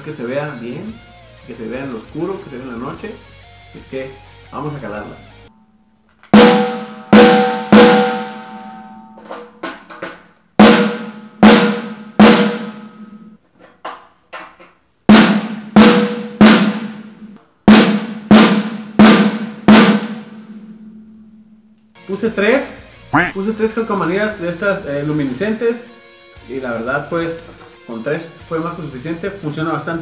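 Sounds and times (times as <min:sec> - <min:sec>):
snare drum hits: 0:06.3 - 0:09.8, 0:10.6 - 0:13.2, 0:15.1 - 0:17.0, 0:17.7 - 0:20.4.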